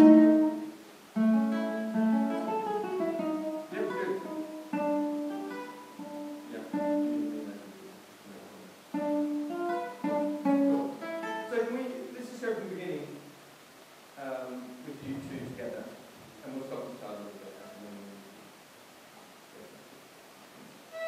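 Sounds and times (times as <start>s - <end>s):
classical guitar duet: 0.0s - 13.2s.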